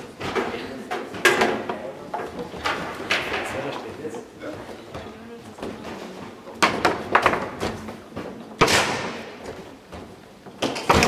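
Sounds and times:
foosball rods clacking: 0:00.0 - 0:03.8, 0:06.6 - 0:07.9.

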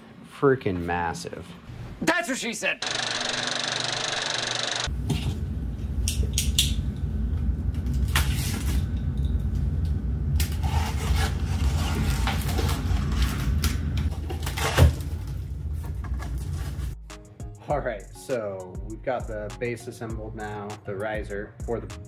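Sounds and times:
cardboard scraping and rustling: 0:10.7 - 0:17.0
steady low rumble: 0:18.8 - 0:20.4.

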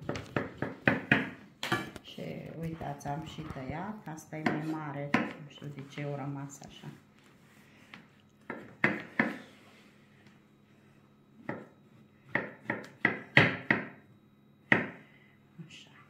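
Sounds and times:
knife chopping on wooden board: 0:00.0 - 0:01.9, 0:04.4 - 0:05.4, 0:08.5 - 0:09.4, 0:12.3 - 0:14.0, 0:14.7 - 0:15.0.

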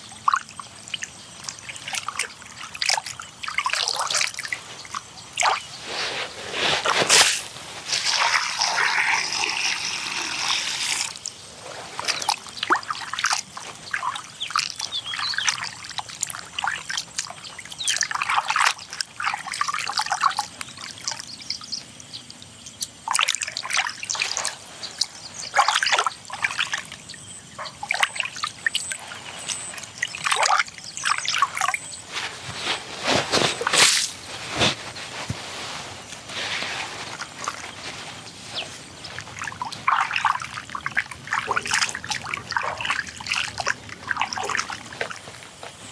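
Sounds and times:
water trickling and splashing: 0:00.0 - 0:45.9
water pouring: 0:06.8 - 0:16.8, 0:39.1 - 0:45.4.

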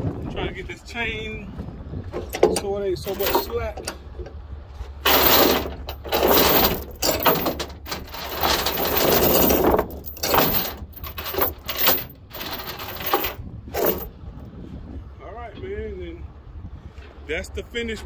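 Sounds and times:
steel chain rattling and clinking: 0:03.1 - 0:03.6, 0:05.0 - 0:14.1.

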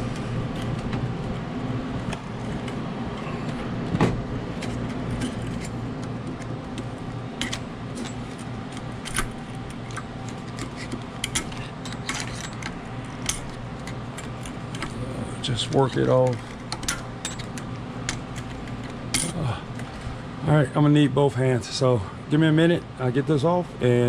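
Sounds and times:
steady low hum: 0:00.0 - 0:24.0
screwdriver clicks and scrapes on metal: 0:04.6 - 0:14.9.

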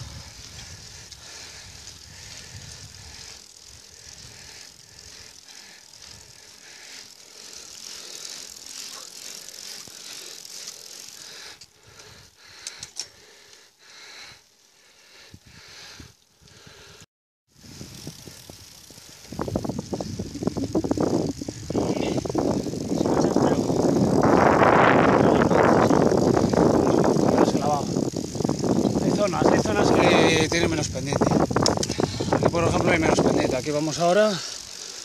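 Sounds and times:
bicycle rattling: 0:00.0 - 0:17.0, 0:17.6 - 0:35.0
bicycle tyres hissing: 0:00.0 - 0:35.0
sharp clicks: 0:31.6 - 0:32.0.

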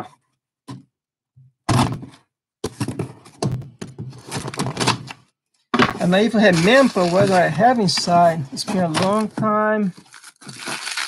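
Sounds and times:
cardboard scraping: 0:05.8 - 0:11.0.

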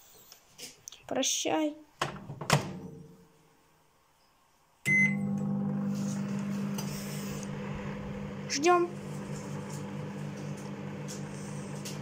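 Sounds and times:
microwave beep: 0:04.9 - 0:05.9
microwave humming: 0:04.9 - 0:12.0.

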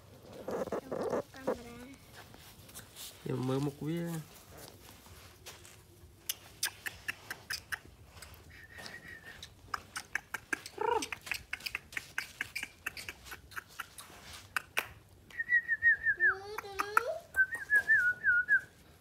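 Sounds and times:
puppy whining: 0:00.3 - 0:01.6.

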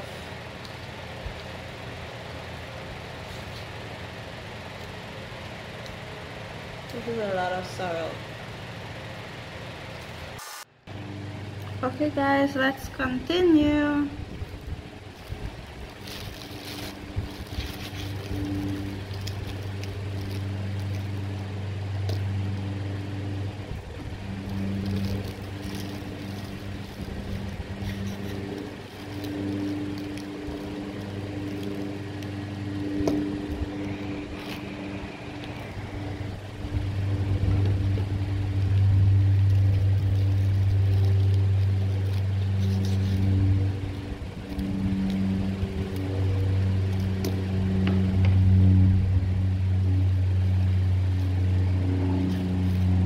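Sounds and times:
low mechanical drone: 0:00.0 - 0:53.0
plastic bag crinkling: 0:14.2 - 0:47.8.

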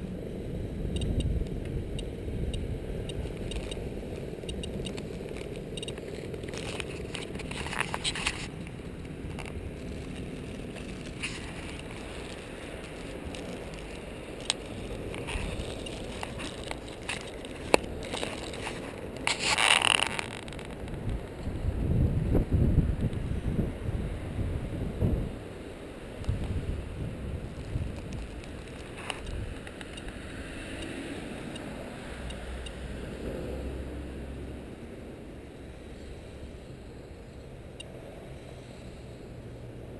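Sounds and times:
sharp clicks: 0:00.9 - 0:03.8, 0:04.4 - 0:08.4
plastic bag crinkling: 0:04.8 - 0:20.8.

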